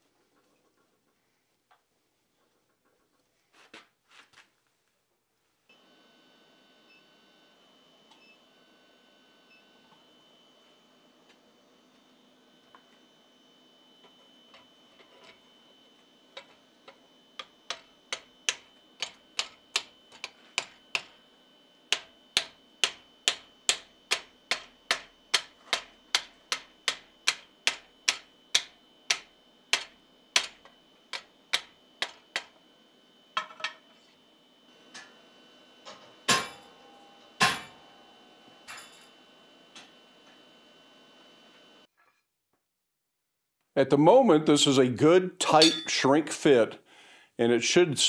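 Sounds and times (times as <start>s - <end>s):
hammer striking hot steel: 17.4s - 21.2s, 21.9s - 32.5s, 36.3s - 37.8s, 45.4s - 46.1s.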